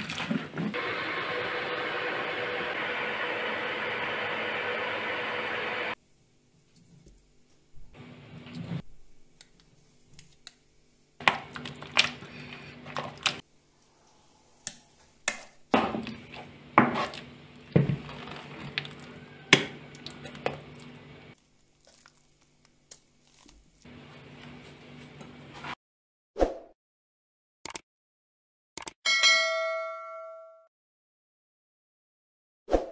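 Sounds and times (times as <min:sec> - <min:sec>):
potatoes squishing under masher: 0:11.2 - 0:13.4, 0:15.8 - 0:25.2.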